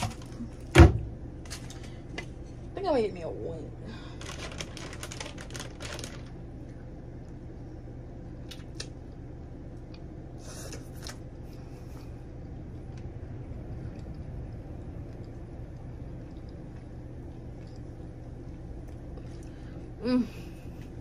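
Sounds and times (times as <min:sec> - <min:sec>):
steady low hum: 0:00.0 - 0:21.0
person chewing and smacking: 0:12.4 - 0:19.6.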